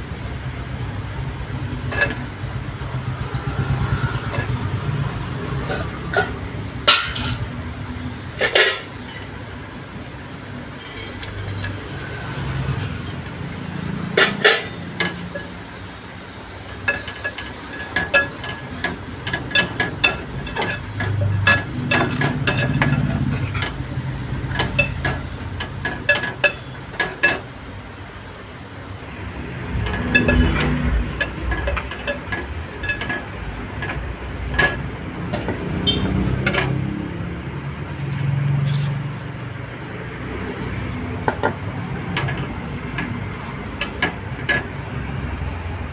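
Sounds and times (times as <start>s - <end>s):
steel utensils clinking on pot: 1.8s - 2.3s, 5.6s - 7.5s, 8.4s - 9.4s, 10.8s - 11.8s, 14.1s - 15.6s, 16.7s - 27.6s, 29.8s - 36.8s, 41.4s - 44.7s.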